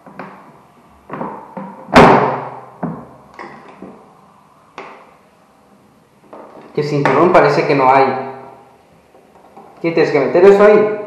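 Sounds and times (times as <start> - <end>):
plastic table slamming: 1.1 - 3.6
plastic table knocks and clunks: 1.1 - 4.0.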